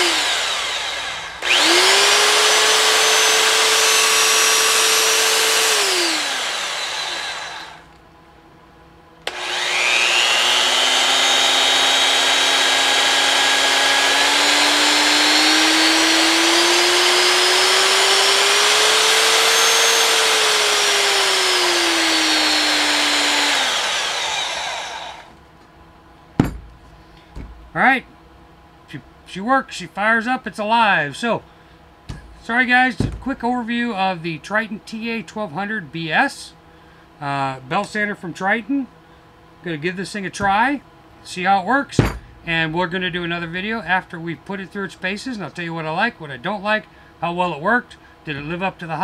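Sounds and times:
belt sander running: 0:00.0 - 0:07.9, 0:09.2 - 0:25.4, 0:32.1 - 0:33.5.

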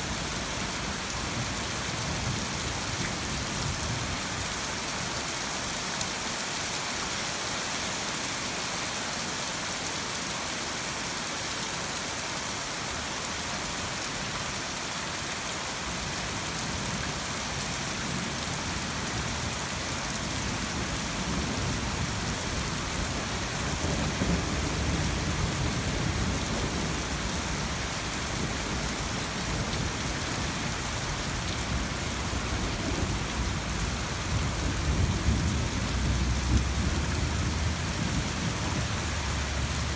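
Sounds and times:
steady rain hissing: 0:00.0 - 0:39.9
thunder rumbling: 0:32.6 - 0:38.8.

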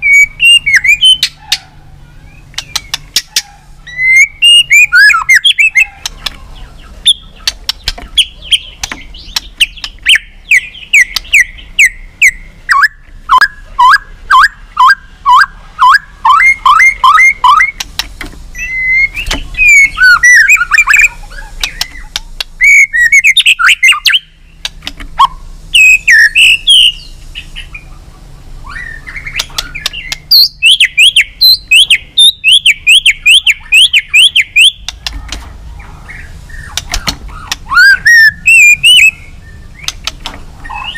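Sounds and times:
bird singing whistled notes: 0:00.0 - 0:01.4, 0:02.0 - 0:17.8, 0:18.5 - 0:24.6, 0:25.2 - 0:27.9, 0:28.6 - 0:35.0, 0:36.0 - 0:40.9
sharp clicks: 0:02.5 - 0:03.5, 0:04.7 - 0:06.4, 0:07.0 - 0:11.6, 0:17.5 - 0:18.4, 0:21.6 - 0:22.6, 0:24.6 - 0:25.3, 0:29.3 - 0:30.5, 0:34.6 - 0:35.5, 0:36.6 - 0:37.7, 0:39.8 - 0:40.5.

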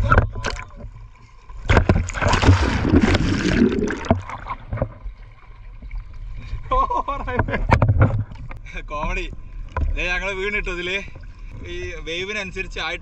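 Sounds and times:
water rushing and splashing: 0:01.6 - 0:04.9.

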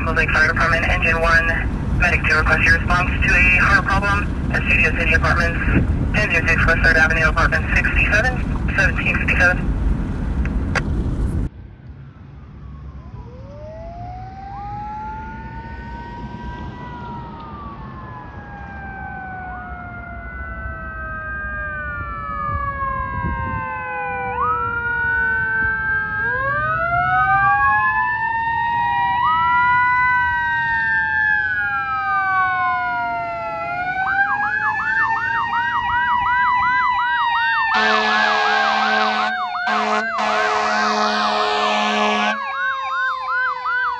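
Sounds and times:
fire engine siren wailing: 0:00.0 - 0:10.6, 0:12.2 - 0:43.9
truck horn blasts: 0:37.7 - 0:42.4.

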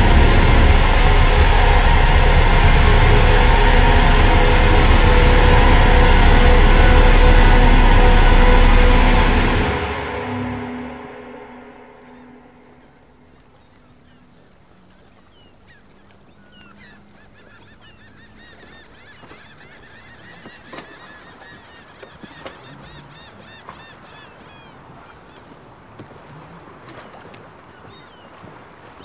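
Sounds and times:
music: 0:00.0 - 0:13.1
low steady haze: 0:00.0 - 0:14.0.

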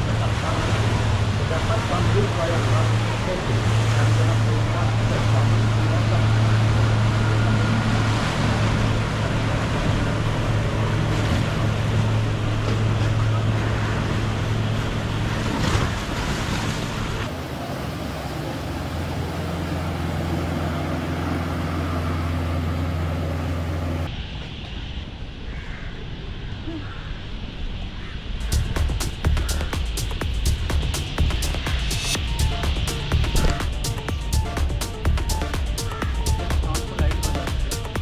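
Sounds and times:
boat engines droning: 0:00.0 - 0:24.4, 0:28.4 - 0:38.0
hiss and wash of boat wake: 0:00.0 - 0:24.4, 0:26.8 - 0:38.0.

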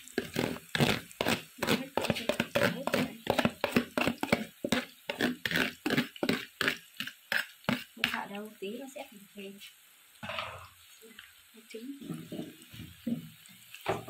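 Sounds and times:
metal spoon scraping plastic bowl: 0:00.2 - 0:08.2.

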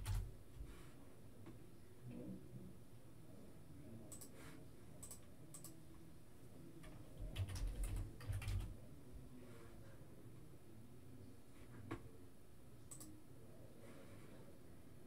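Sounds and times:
typing on computer keyboard: 0:00.0 - 0:00.3, 0:06.8 - 0:08.7.

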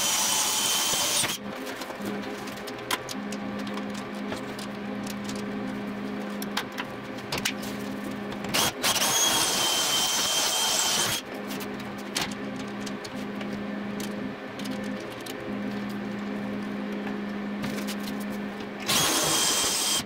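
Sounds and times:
steady low hum: 0:01.3 - 0:09.0, 0:10.6 - 0:20.0
power tool hissing and whistling: 0:08.6 - 0:11.2, 0:18.9 - 0:20.0.

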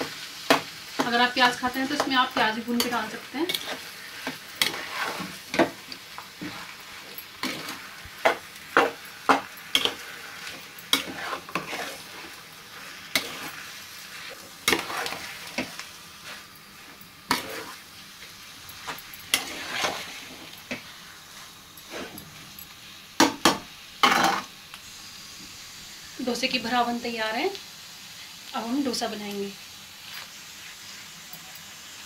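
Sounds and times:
spoon knocking and scraping pan: 0:00.0 - 0:12.4, 0:13.1 - 0:13.7, 0:14.3 - 0:22.6, 0:23.2 - 0:24.5
spoon mashing potato in a pan: 0:00.0 - 0:22.2
faint sizzle: 0:00.0 - 0:32.0.

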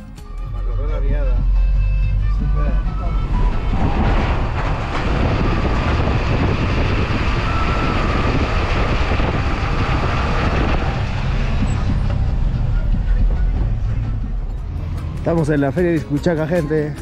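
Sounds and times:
vehicle engine and tyre noise: 0:00.8 - 0:17.0
wind on microphone: 0:03.2 - 0:12.1.

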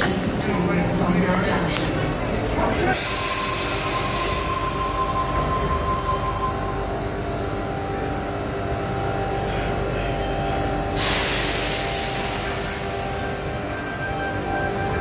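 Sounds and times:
train equipment humming: 0:00.0 - 0:15.0
air release hiss: 0:11.0 - 0:12.9.

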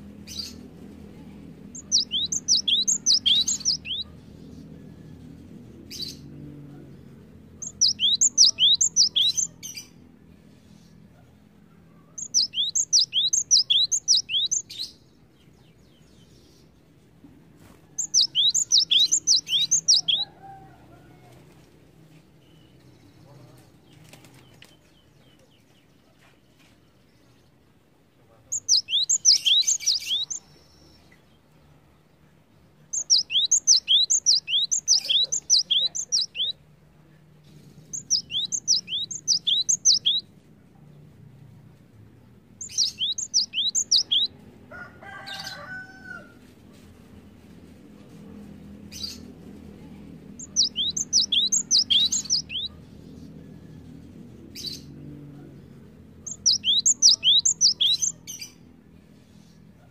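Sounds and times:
faint low hum: 0:00.0 - 0:59.9
lower bird call: 0:07.6 - 0:09.6, 0:18.0 - 0:20.8, 0:28.5 - 0:30.4, 0:42.6 - 0:44.3, 0:50.4 - 0:52.8, 0:56.3 - 0:58.4.

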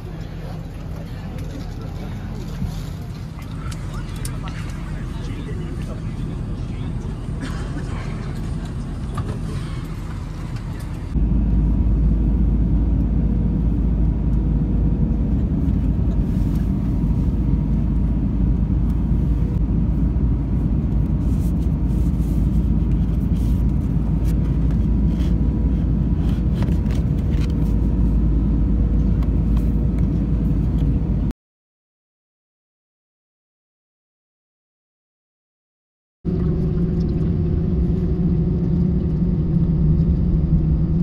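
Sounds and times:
airliner cabin rumble: 0:00.0 - 0:31.3, 0:36.3 - 0:41.0
steady hum: 0:00.0 - 0:31.3, 0:36.3 - 0:41.0.

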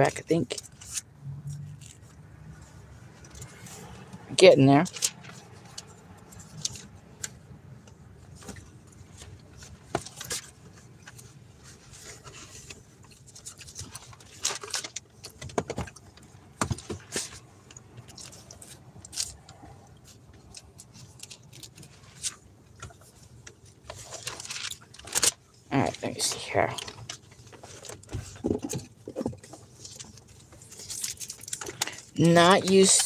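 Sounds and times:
pages rustling: 0:04.8 - 0:07.4, 0:16.8 - 0:33.0.

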